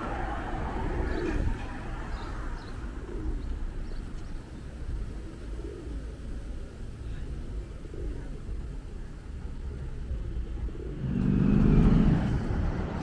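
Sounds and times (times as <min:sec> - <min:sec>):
pigeons cooing: 0:00.0 - 0:13.0
steady low rumble: 0:06.0 - 0:13.0.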